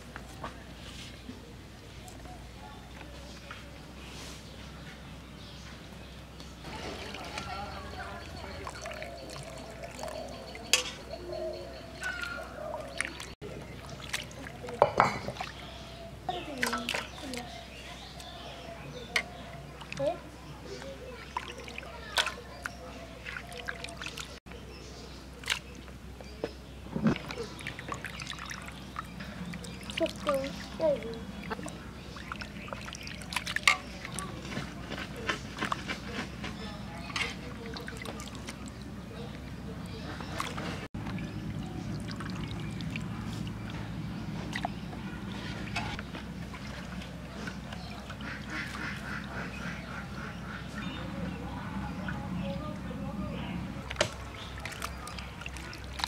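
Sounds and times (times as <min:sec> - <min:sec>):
chicken squelching in water: 0:06.7 - 0:24.4, 0:25.4 - 0:26.0, 0:27.1 - 0:51.0, 0:53.8 - 0:56.0
ducks quacking: 0:47.3 - 0:51.8.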